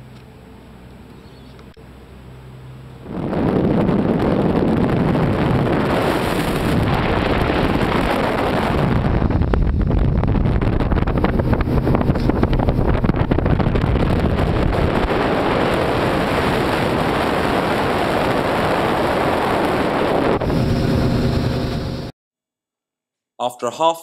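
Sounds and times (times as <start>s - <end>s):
boat motor and water rush: 0.0s - 22.1s
wind buffeting microphone: 2.9s - 22.1s.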